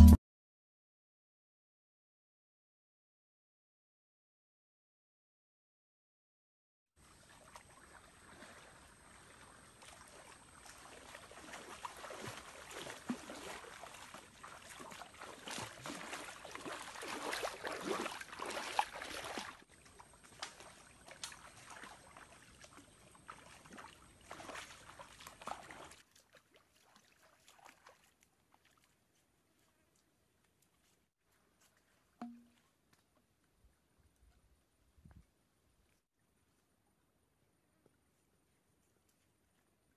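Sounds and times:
person wading splashing in stream: 7.0s - 32.9s.

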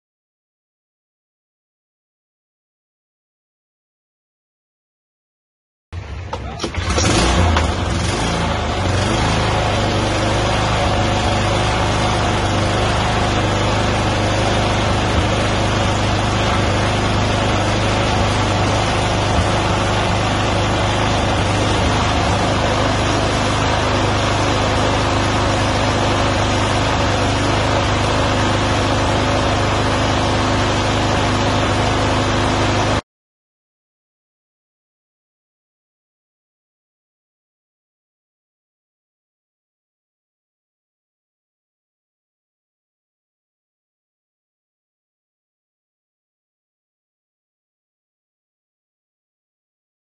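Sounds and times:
lawn mower engine running: 6.0s - 33.0s.

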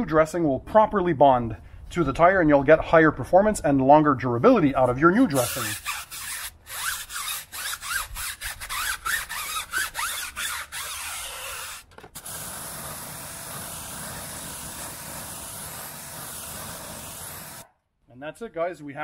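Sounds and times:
brush scrubbing a tire: 5.3s - 17.6s
pressure washer spraying water: 10.8s - 17.7s.

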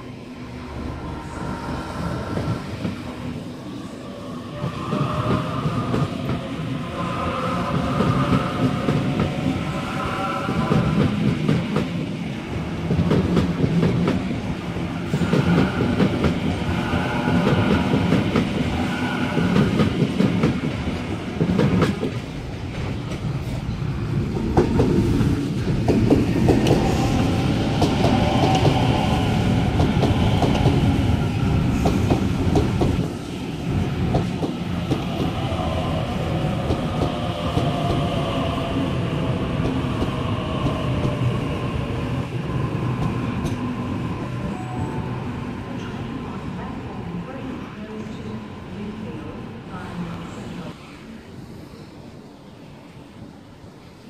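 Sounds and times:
train wheels rumbling on rail: 4.2s - 47.4s.

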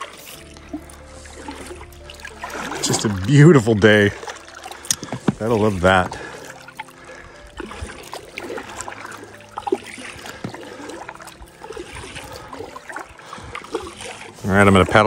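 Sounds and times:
light splashes: 0.0s - 15.0s
water trickling and dripping: 0.0s - 15.0s
small knocks on kayak: 4.9s - 5.5s.

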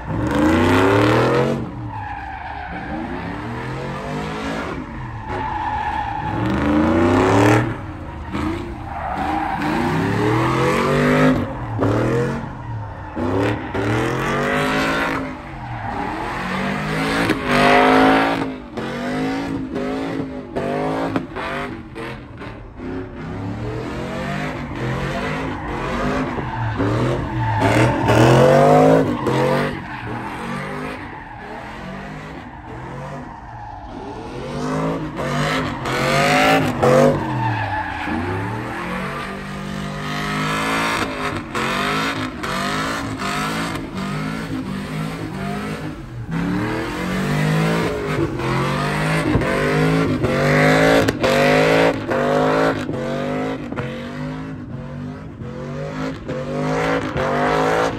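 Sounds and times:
truck engine revving: 2.8s - 33.2s.

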